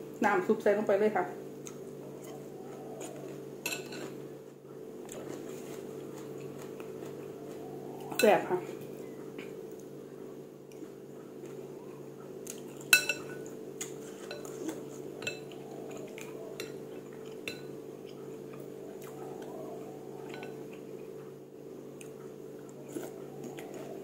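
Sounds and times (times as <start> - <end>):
utensils clinking on ceramic bowl: 3.6 - 4.1, 12.9 - 13.5, 14.2 - 14.6, 15.2 - 15.6, 20.3 - 20.6.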